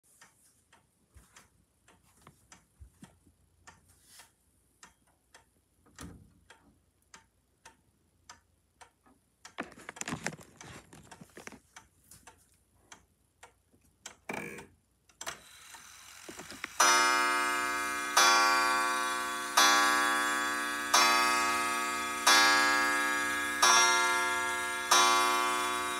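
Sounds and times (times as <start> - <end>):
wall clock ticking: 0.1 - 25.9
rustling: 9.6 - 12.4
clock movement whirring: 15.2 - 25.9
clock chime ringing: 16.7 - 25.9.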